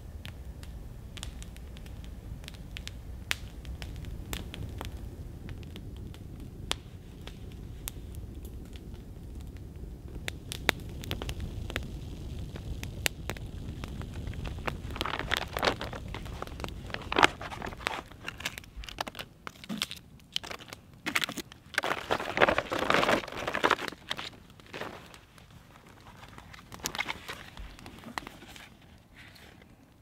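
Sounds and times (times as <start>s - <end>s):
campfire crackling and popping: 0.0s - 30.0s
plastic bag crinkling: 14.2s - 29.5s.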